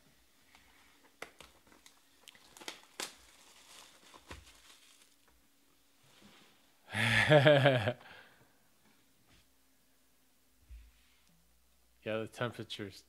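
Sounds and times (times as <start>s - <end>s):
plastic shrink wrap crinkling: 0.6s - 5.4s.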